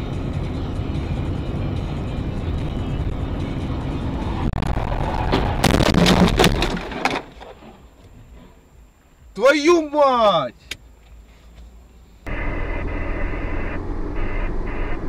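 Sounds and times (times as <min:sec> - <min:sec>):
road and engine noise: 0:00.0 - 0:15.0
car crash impacts and crunching: 0:04.6 - 0:07.8.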